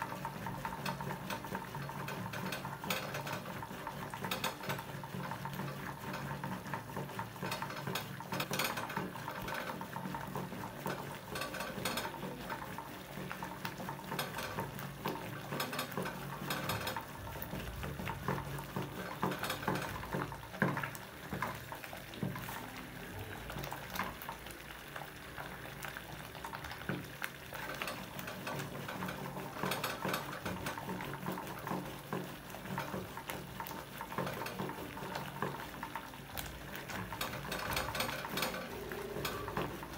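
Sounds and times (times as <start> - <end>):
thick soup bubbling: 0.0 - 39.9.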